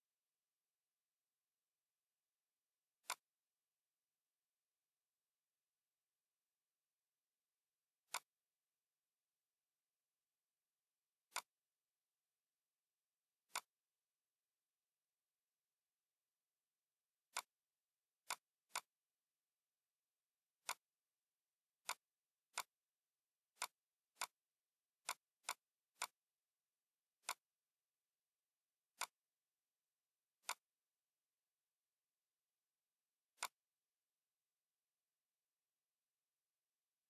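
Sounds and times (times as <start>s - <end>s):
computer mouse clicks: 3.0s - 3.3s, 8.0s - 8.4s, 11.3s - 11.6s, 13.4s - 13.8s, 17.3s - 17.6s, 18.2s - 19.0s, 20.6s - 21.0s, 21.8s - 22.8s, 23.5s - 26.3s, 27.2s - 27.6s, 28.9s - 29.3s, 30.4s - 30.8s, 33.3s - 33.8s.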